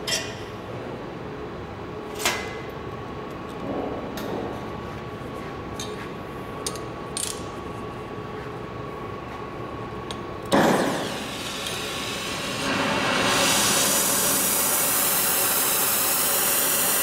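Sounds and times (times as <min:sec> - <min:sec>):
torch flame hissing: 0:10.6 - 0:17.0
welding torch lighting whoomp: 0:10.6 - 0:17.0.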